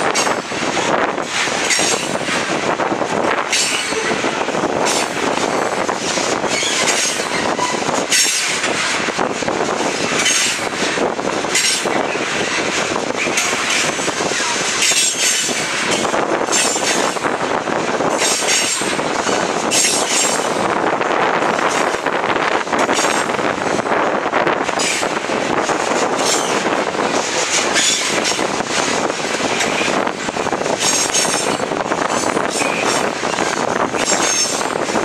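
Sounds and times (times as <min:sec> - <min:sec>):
train wheels on rails: 0:00.0 - 0:35.0
wheels clicking over rail joints: 0:00.0 - 0:35.0
high wheel squeal: 0:06.4 - 0:08.6, 0:27.7 - 0:28.5.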